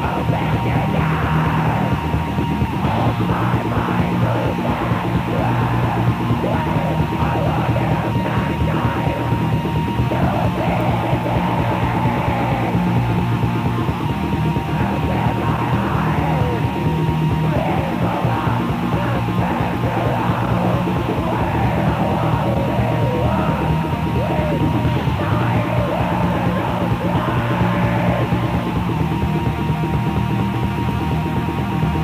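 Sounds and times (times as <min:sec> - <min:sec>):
harsh shouted vocal: 0:00.0 - 0:29.4
fast drumming: 0:00.0 - 0:30.4
distorted guitar: 0:00.0 - 0:32.0.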